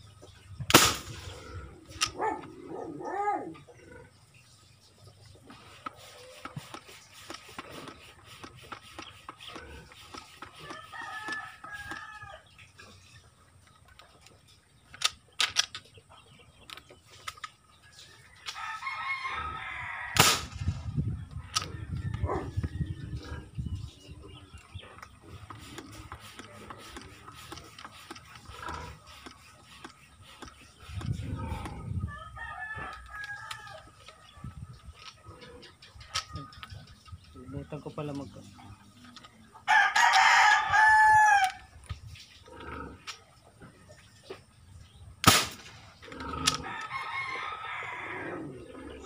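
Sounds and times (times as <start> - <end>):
marble gun firing bang: 0.7 - 1.3, 20.2 - 20.7, 45.2 - 45.9
rooster crowing: 10.7 - 12.4, 39.7 - 41.6, 46.6 - 48.5
toy gun clicks and knocks: 14.9 - 15.8.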